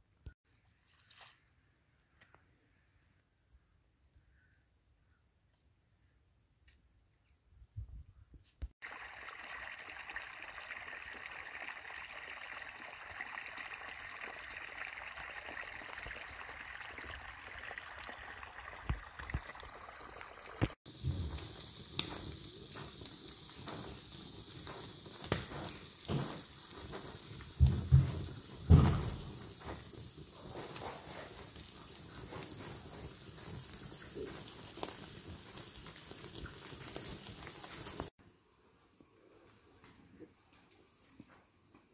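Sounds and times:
water rushing along a furrow: 0:08.8 - 0:20.8
charcoal fire crackling: 0:08.8 - 0:38.2.

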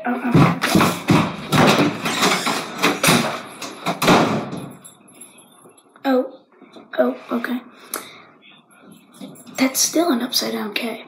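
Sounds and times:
loud knocks and thumps: 0:00.2 - 0:04.7.

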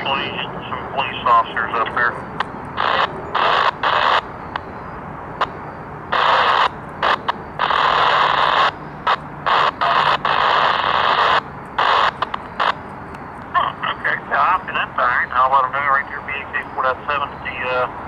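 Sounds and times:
radio scanner static bursts: 0:00.0 - 0:18.0.

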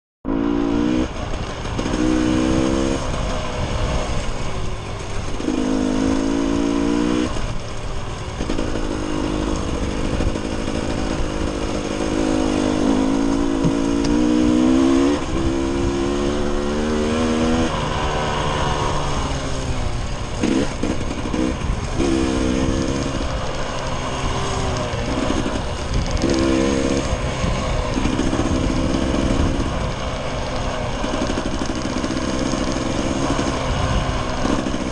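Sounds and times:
dirt bike engine revving: 0:00.3 - 0:34.9.

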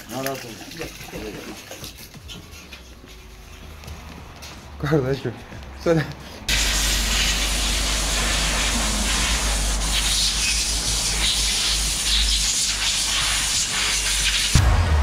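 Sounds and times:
hissing spray: 0:06.5 - 0:14.6.

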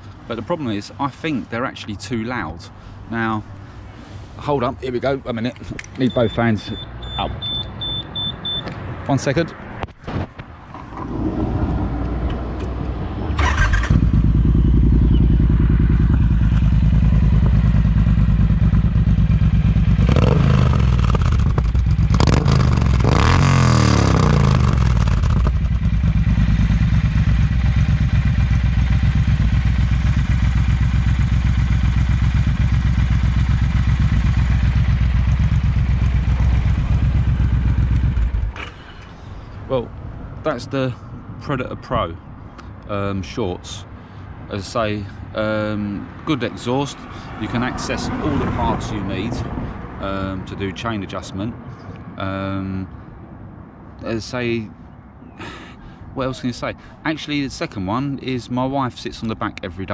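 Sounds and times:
motorcycle engine idling and revving: 0:10.7 - 0:39.5, 0:45.7 - 0:51.2.

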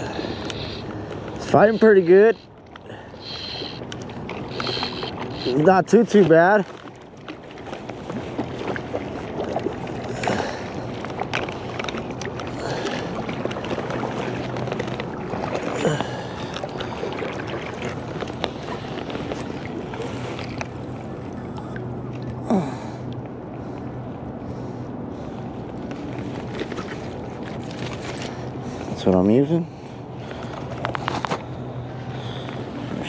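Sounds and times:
small clicks and splashes: 0:03.6 - 0:22.4, 0:25.8 - 0:28.9.

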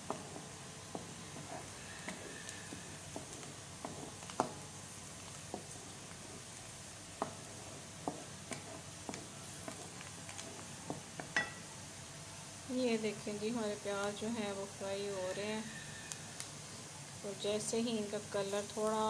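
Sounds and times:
wooden spatula stirring: 0:00.0 - 0:11.6
onions sizzling in oil: 0:00.0 - 0:19.0.

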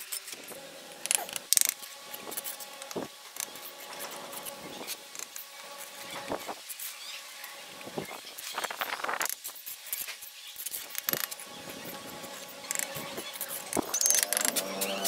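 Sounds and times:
trowel scraping bricks and mortar: 0:08.4 - 0:15.0.

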